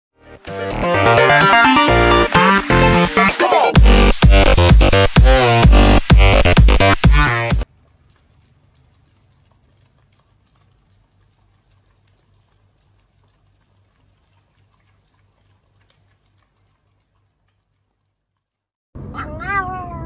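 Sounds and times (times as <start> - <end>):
dogs licking: 7.6 - 18.6.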